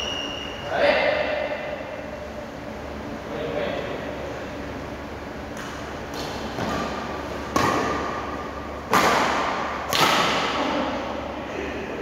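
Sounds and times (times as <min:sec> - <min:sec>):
racket hitting shuttlecock: 0:05.5 - 0:10.7.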